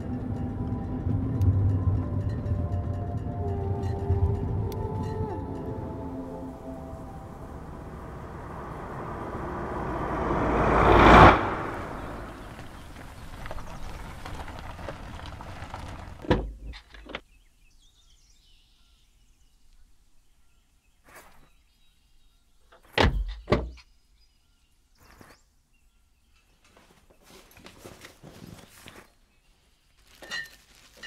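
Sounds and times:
car engine running: 0:05.6 - 0:14.0.

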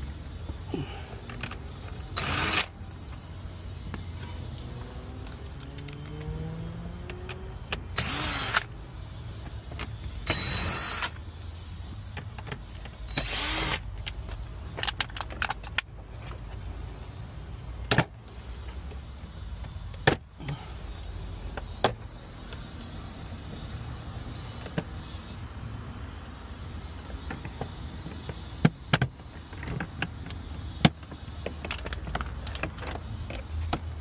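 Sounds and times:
power screwdriver whirring: 0:02.0 - 0:02.8, 0:07.0 - 0:08.7, 0:10.2 - 0:11.2, 0:13.1 - 0:13.9.

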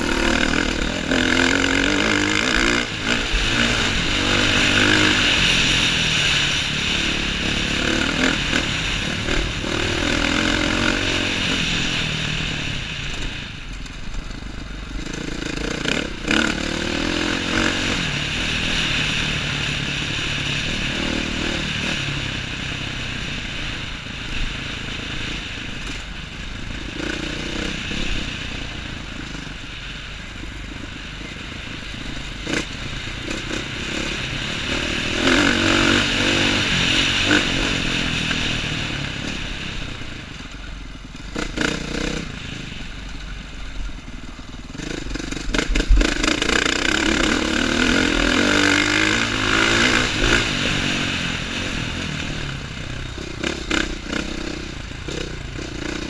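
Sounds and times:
dirt bike engine revving: 0:00.0 - 0:13.4, 0:14.2 - 0:26.0, 0:26.6 - 0:29.9, 0:30.7 - 0:40.4, 0:41.1 - 0:56.0.

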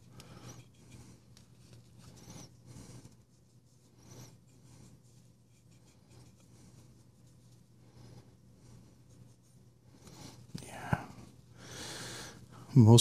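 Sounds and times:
cloth rubbing on knife handle: 0:00.0 - 0:10.6
low steady hum: 0:00.0 - 0:13.0.

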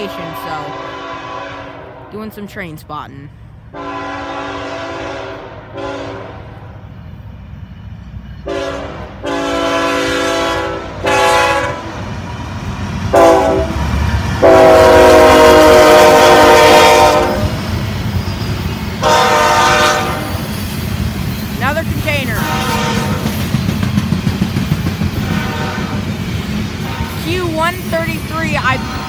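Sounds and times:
locomotive air horn blasts: 0:00.0 - 0:01.9, 0:03.7 - 0:06.4, 0:08.4 - 0:11.9, 0:13.1 - 0:13.8, 0:14.4 - 0:17.6, 0:19.0 - 0:20.4, 0:22.2 - 0:23.2, 0:25.2 - 0:26.0, 0:26.8 - 0:27.7
train rumbling by: 0:00.0 - 0:29.0.

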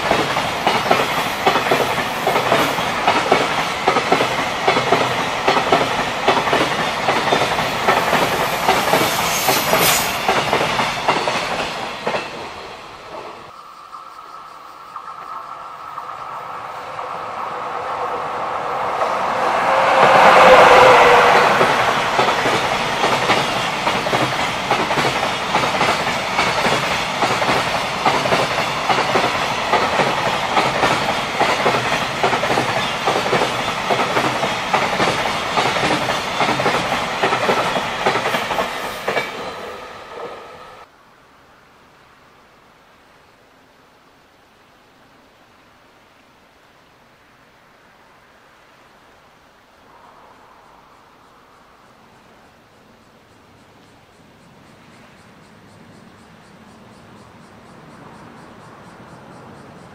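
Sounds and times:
wagon wheels clickety-clack: 0:00.0 - 0:12.4
electric train passing: 0:00.0 - 0:40.9, 0:49.4 - 0:59.9
faint hiss: 0:00.0 - 0:59.9.

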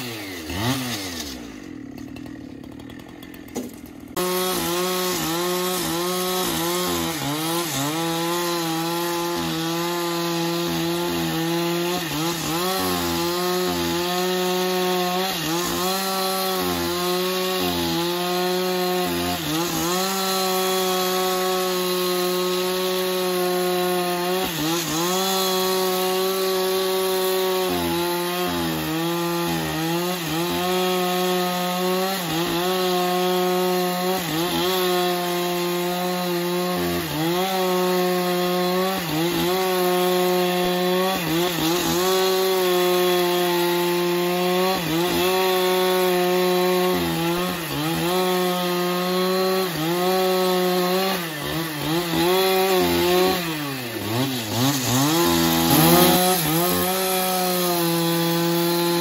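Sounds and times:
sawmill saw whining hum: 0:00.0 - 0:59.0.

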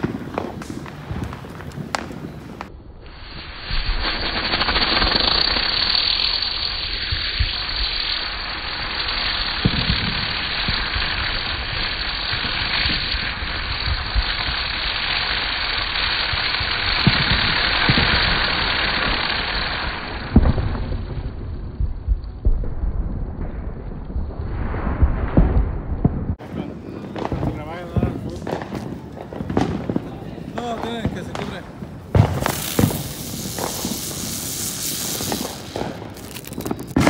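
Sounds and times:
sharp crack: 0:00.0 - 0:21.4, 0:30.6 - 0:37.0
firework fountain hissing: 0:00.0 - 0:25.6, 0:26.3 - 0:37.0.

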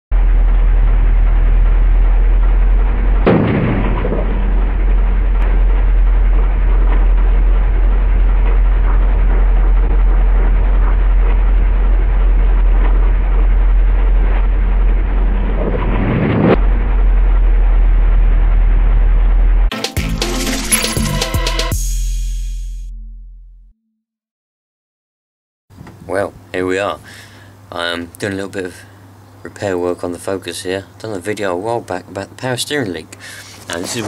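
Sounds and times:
car engine running: 0:00.1 - 0:19.7
sudden loud burst: 0:02.5 - 0:10.2
hose bursting with loud bang: 0:03.2 - 0:05.4.

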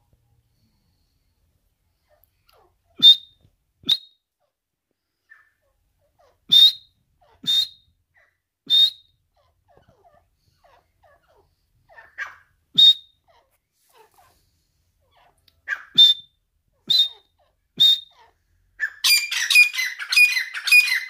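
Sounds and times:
bird high-pitched calls: 0:15.2 - 0:21.0.

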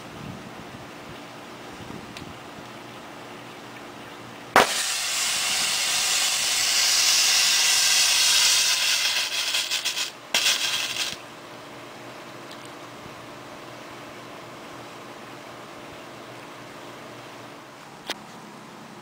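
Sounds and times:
thermite burst: 0:04.5 - 0:11.2
loud rushing hiss: 0:04.6 - 0:11.2
thermite sputtering: 0:04.6 - 0:11.2.

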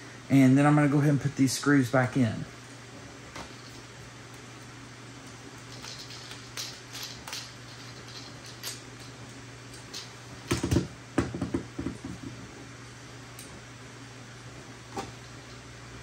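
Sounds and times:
metal parts knocking and rattling: 0:05.2 - 0:10.8.

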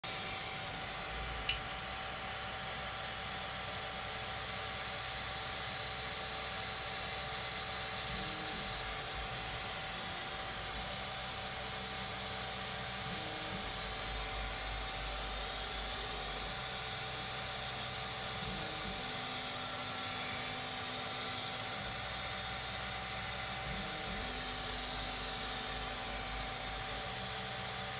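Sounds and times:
cooling fans hissing and humming: 0:00.0 - 0:03.6.

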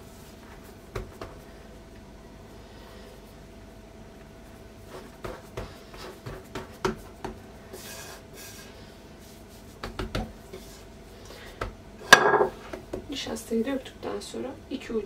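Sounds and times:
hands patting dough: 0:00.1 - 0:01.5, 0:04.8 - 0:08.1, 0:09.2 - 0:13.1.

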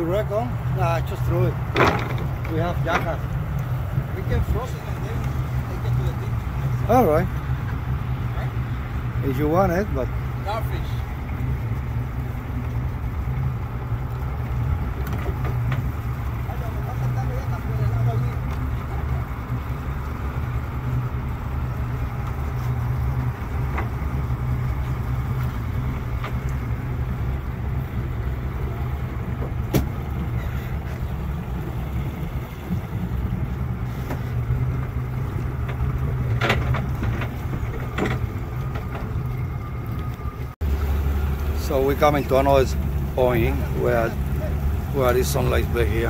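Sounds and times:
boat engine idling: 0:00.0 - 0:46.0.

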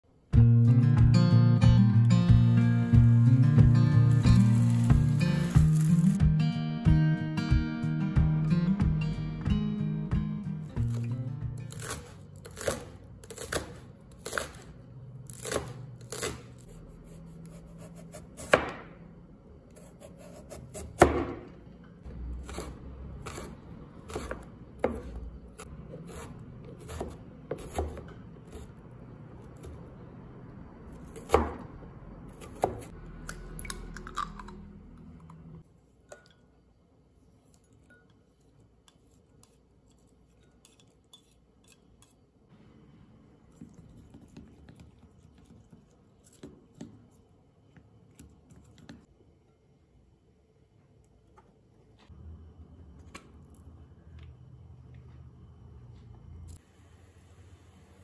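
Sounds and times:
cleaver chopping on cutting board: 0:17.8 - 0:18.9, 0:20.0 - 0:21.5, 0:25.9 - 0:28.7.

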